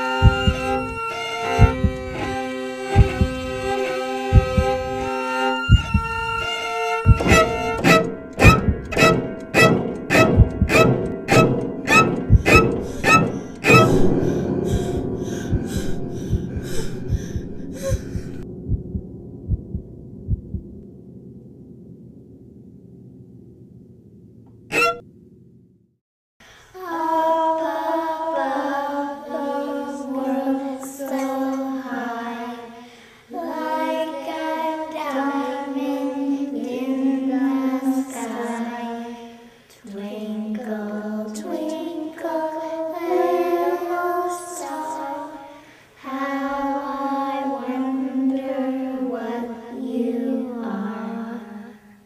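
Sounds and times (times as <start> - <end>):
high voice singing unaccompanied: 26.8 - 39.2, 39.8 - 51.8.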